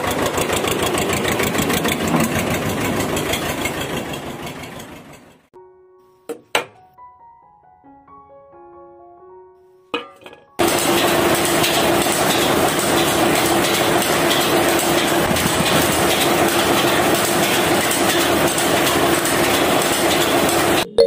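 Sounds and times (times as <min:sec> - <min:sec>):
drum rattling with cement: 0:00.0 - 0:05.5, 0:10.0 - 0:20.9.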